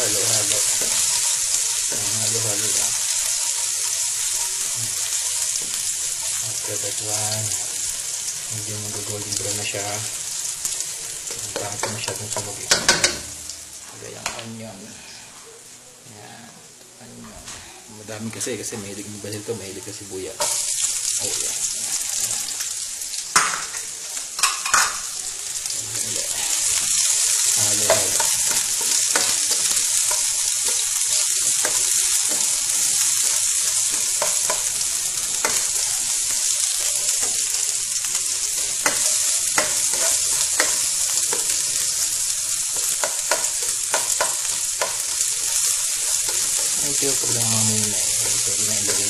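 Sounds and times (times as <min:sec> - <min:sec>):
onions sizzling in oil: 0:00.0 - 0:14.9, 0:17.6 - 0:49.0
spatula scraping pan: 0:25.9 - 0:49.0.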